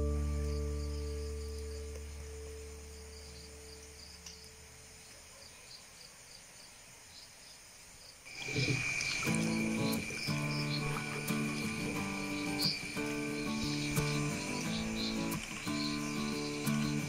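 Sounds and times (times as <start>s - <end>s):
background music: 0.0s - 4.2s, 9.3s - 17.0s
crickets chirping: 0.0s - 17.0s.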